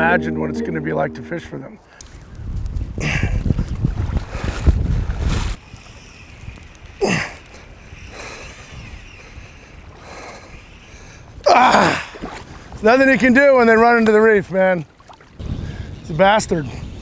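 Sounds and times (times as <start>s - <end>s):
wind noise on microphone: 2.0s - 6.6s, 15.4s - 17.0s
water splashing: 14.9s - 15.4s.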